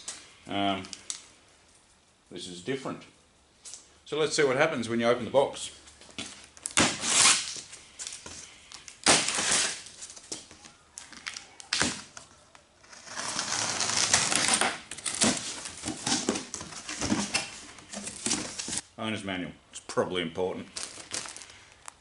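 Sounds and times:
knife cutting plastic straps: 6.6s - 7.6s, 8.9s - 9.9s, 12.8s - 18.8s
knife slitting packing tape: 6.7s - 7.6s, 9.0s - 9.9s, 12.8s - 16.4s
cardboard flaps rustling and scraping: 12.8s - 18.8s.

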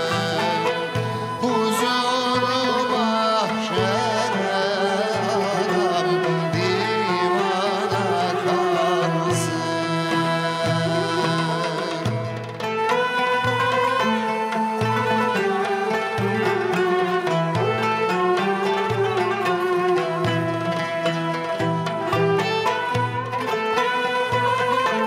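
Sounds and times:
man singing: 0.0s - 12.4s
string instruments: 0.0s - 25.0s.

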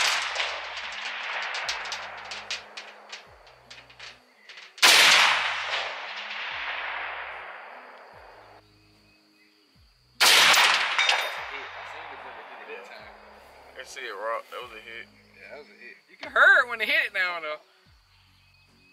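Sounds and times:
rifle shots with echo: 0.0s - 8.6s, 10.2s - 13.7s.

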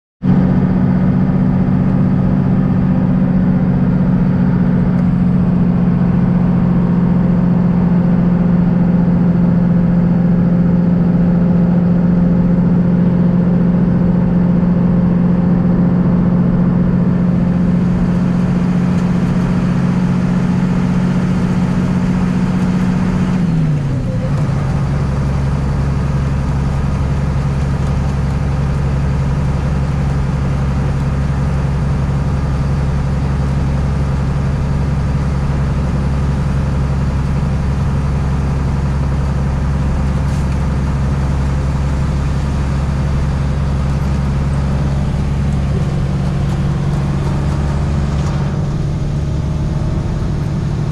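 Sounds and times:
bus engine drone: 0.2s - 50.9s
tyres on wet road: 10.9s - 50.9s.

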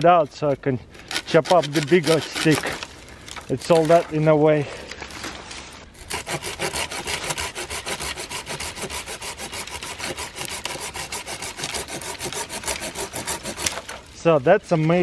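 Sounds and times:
pruning saw cutting branch: 1.0s - 4.2s, 6.0s - 14.1s.

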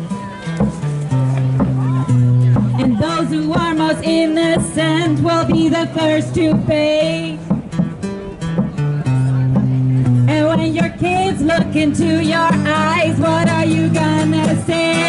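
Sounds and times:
acoustic guitar: 0.0s - 15.0s
woman singing into microphone: 2.8s - 7.5s, 10.3s - 15.0s.

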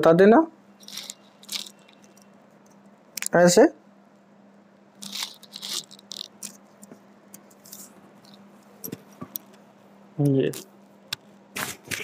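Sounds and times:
steady low hum: 0.0s - 12.0s
hands rustling and scraping: 0.8s - 2.1s, 5.0s - 8.5s.

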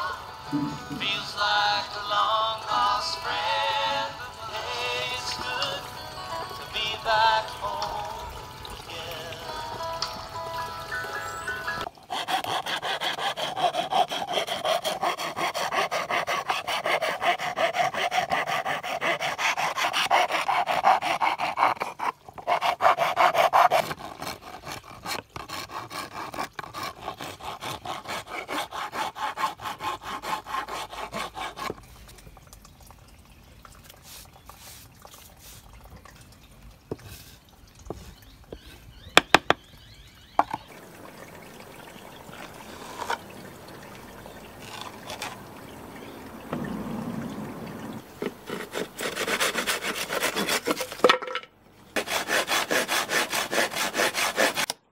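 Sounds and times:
hand file scraping wood: 12.1s - 31.9s, 42.3s - 43.4s, 44.0s - 45.9s, 47.8s - 51.0s, 52.0s - 54.8s.

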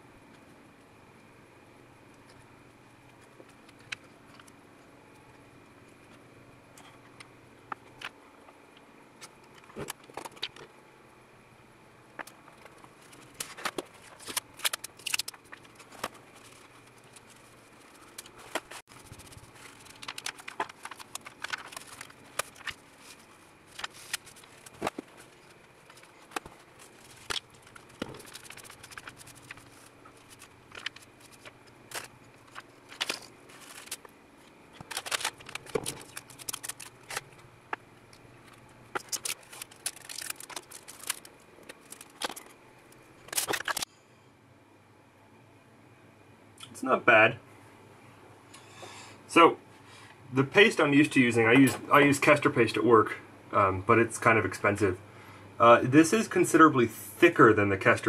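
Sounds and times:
plastic film crinkling: 12.6s - 43.9s.

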